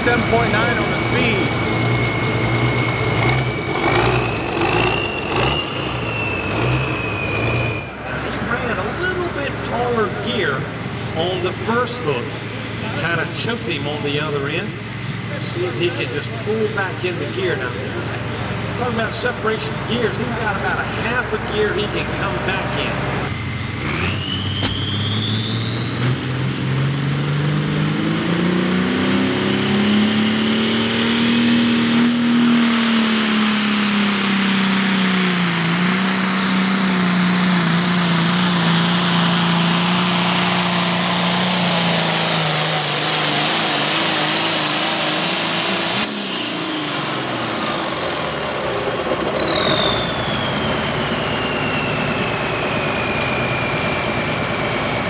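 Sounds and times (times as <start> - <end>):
diesel engine at full throttle: 0.0 - 55.0
turbo whistle: 1.1 - 8.0.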